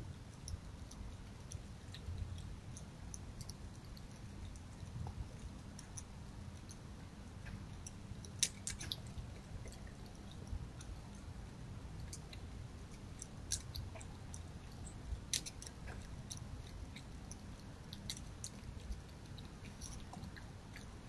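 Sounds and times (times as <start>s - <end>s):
fox chewing: 0.0s - 21.0s
low background rumble: 0.0s - 21.0s
small clicks: 7.4s - 11.3s, 12.0s - 21.0s.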